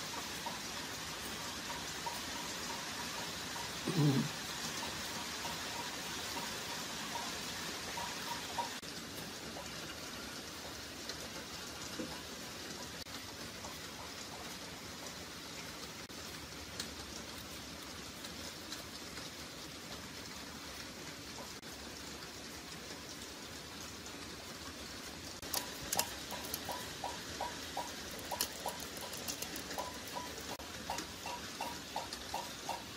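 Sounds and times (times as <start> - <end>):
rain-like patter: 0.0 - 32.9
faint ticks: 25.3 - 32.9.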